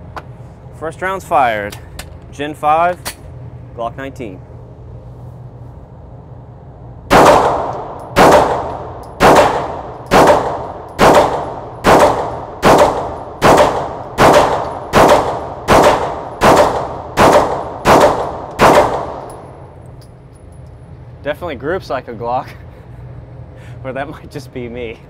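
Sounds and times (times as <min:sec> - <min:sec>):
pistol shots echoing indoors: 0:07.1 - 0:19.6.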